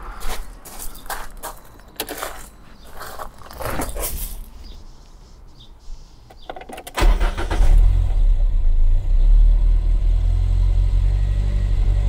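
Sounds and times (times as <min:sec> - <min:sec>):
car engine cranking: 0:06.3 - 0:08.6.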